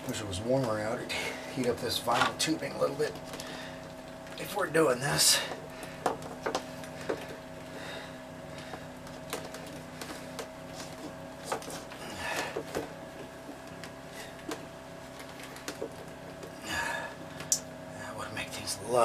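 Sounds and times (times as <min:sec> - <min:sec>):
faint steady hum: 0:00.0 - 0:19.0
tubing light clicks: 0:17.4 - 0:17.7.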